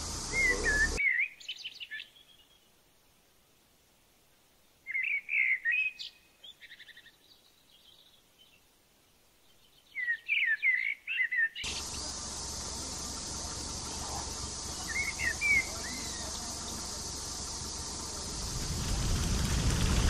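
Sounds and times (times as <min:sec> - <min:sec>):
steady hiss: 0:00.0 - 0:01.0, 0:11.6 - 0:20.0
songbird singing whistled phrases: 0:00.2 - 0:02.7, 0:04.9 - 0:08.5, 0:09.8 - 0:11.9, 0:14.5 - 0:16.4.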